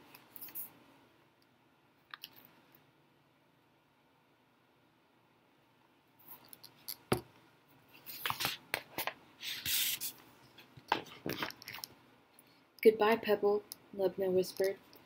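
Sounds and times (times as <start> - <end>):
paper rustling: 8.0 - 10.2
page swishing over: 8.1 - 10.2.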